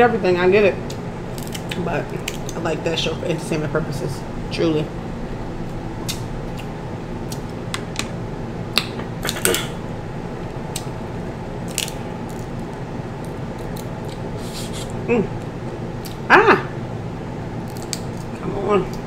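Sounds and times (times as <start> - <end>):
steady hum: 0.0 - 19.0
crab shell cracking: 1.3 - 2.6, 10.7 - 11.0, 11.6 - 14.3, 17.6 - 19.0.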